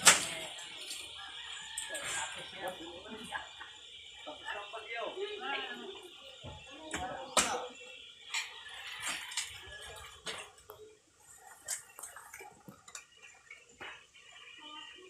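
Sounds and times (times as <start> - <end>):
sharp crack of stalks: 0.0 - 0.5.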